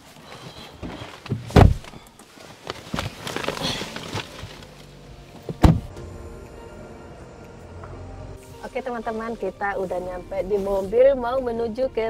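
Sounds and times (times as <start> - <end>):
rustling and small knocks: 0.1 - 5.9
car door opening thump: 1.3 - 1.9, 5.4 - 6.1
car door slamming: 1.3 - 2.0, 5.4 - 6.1.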